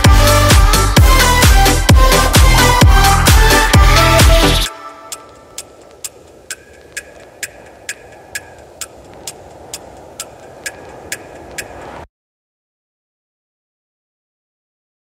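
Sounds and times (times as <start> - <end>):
electronic ticking: 0.0 - 12.1
soft hiss: 0.0 - 12.1.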